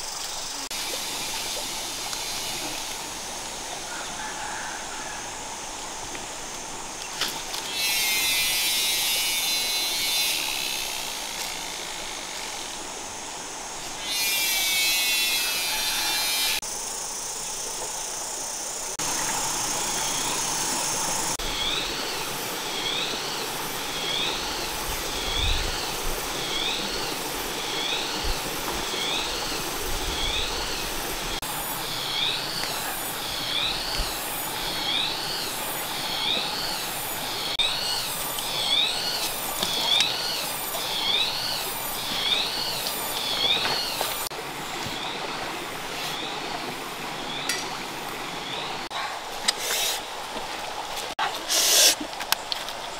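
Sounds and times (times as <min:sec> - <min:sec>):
high insect buzzing: 0:07.6 - 0:12.8, 0:14.0 - 0:17.4
steady hiss: 0:49.3 - 0:50.3, 0:50.9 - 0:52.7.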